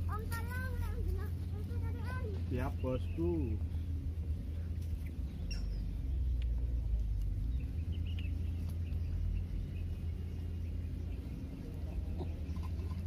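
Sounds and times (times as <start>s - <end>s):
faint bird chirps: 4.9s - 13.0s.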